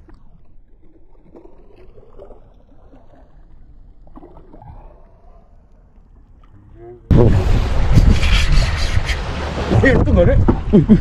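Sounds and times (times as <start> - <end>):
water gurgling and trickling: 0.0 - 11.0
wind rumble on microphone: 7.1 - 11.0.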